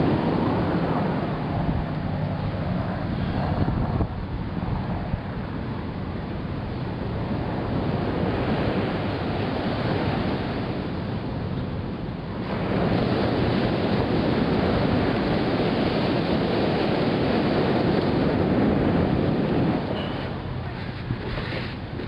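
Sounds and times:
ocean surf on a beach: 0:00.0 - 0:22.0
wind buffeting the microphone: 0:00.0 - 0:22.0.

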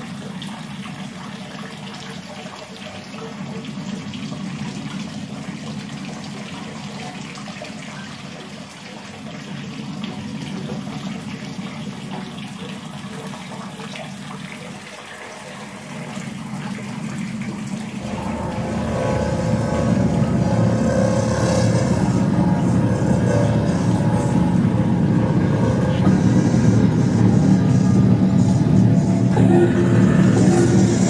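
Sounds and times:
rushing noise with low rumble: 0:17.6 - 0:31.0.

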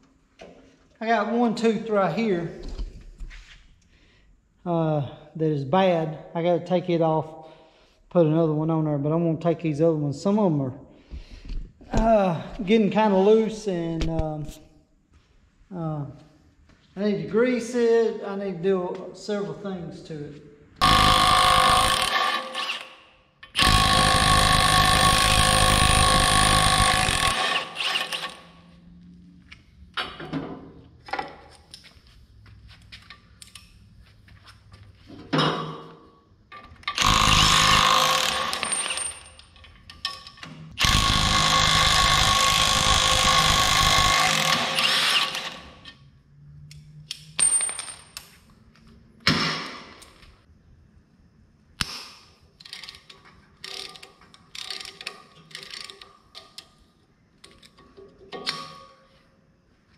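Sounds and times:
impact wrench hammering on bolt: 0:20.8 - 0:22.6, 0:23.5 - 0:28.2.

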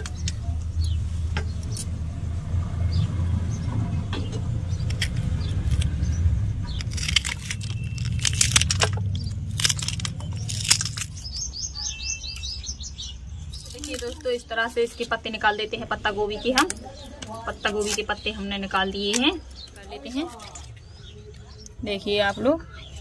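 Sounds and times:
low rumble: 0:00.0 - 0:13.7
bird chirping: 0:00.0 - 0:23.0.

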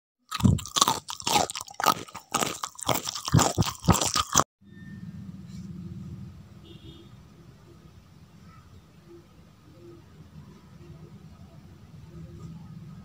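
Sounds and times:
crunching and chewing: 0:00.3 - 0:04.5.

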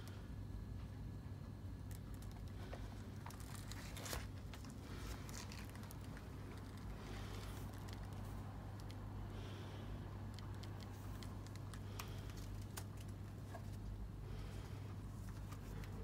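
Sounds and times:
steady low hum: 0:00.0 - 0:16.0
paper rustling and crinkling: 0:01.9 - 0:09.0, 0:10.4 - 0:14.0, 0:15.1 - 0:16.0.

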